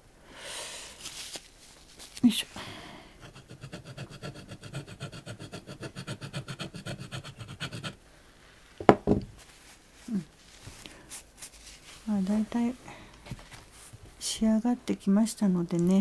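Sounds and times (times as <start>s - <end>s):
sharp knocks: 8.8s - 9.4s
soft thud: 8.8s - 9.4s.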